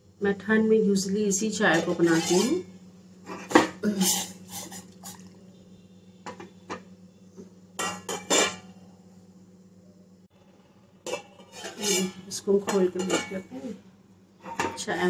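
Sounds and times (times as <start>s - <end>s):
steel kitchenware clinking: 1.7s - 2.6s, 7.8s - 8.7s, 11.0s - 13.5s.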